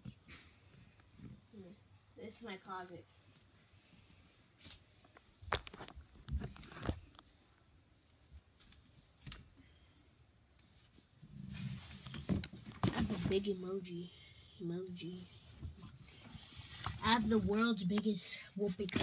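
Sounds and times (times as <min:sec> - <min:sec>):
clothes and hangers rustling: 0:15.4 - 0:19.0.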